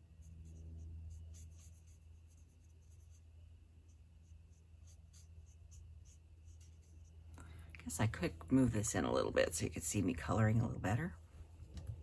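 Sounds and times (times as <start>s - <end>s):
low steady hum: 0.0s - 12.0s
marker scratching on cardstock: 0.1s - 7.2s.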